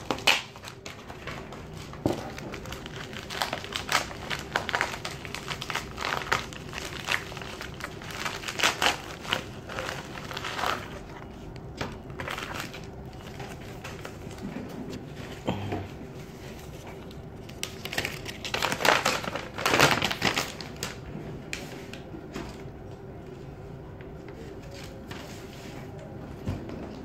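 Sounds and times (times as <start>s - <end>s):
packaging crinkling: 0.0s - 14.5s, 16.4s - 22.0s.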